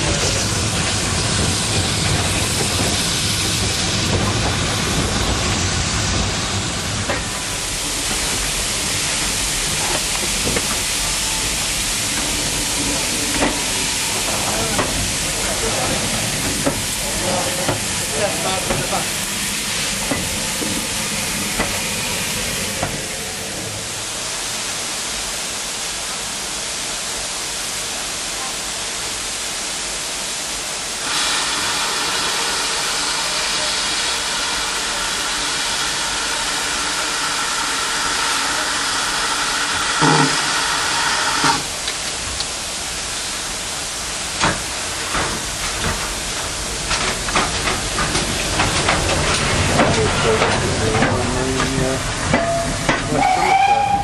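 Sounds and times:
steam hissing with whistling ring: 0:07.4 - 0:23.3, 0:31.0 - 0:41.7, 0:52.3 - 0:54.0.

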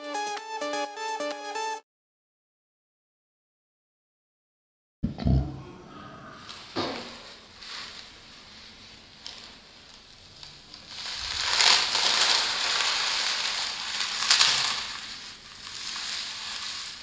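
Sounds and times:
brittle carbon crunching by hand: 0:09.9 - 0:17.0.

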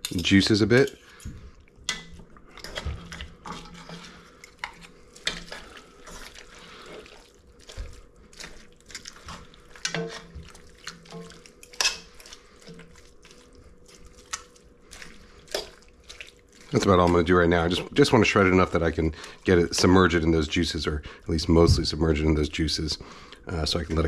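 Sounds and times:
wet squelching of meat: 0:00.2 - 0:24.0
forks scraping a pot: 0:02.6 - 0:07.2, 0:08.4 - 0:13.0.

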